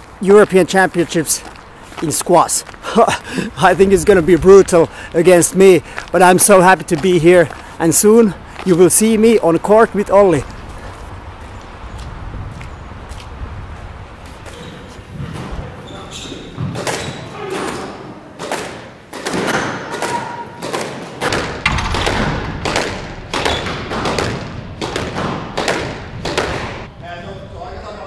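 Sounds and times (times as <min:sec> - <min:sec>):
squash racket strikes: 0:16.5 - 0:26.9
ball smacking off court walls: 0:18.4 - 0:26.8.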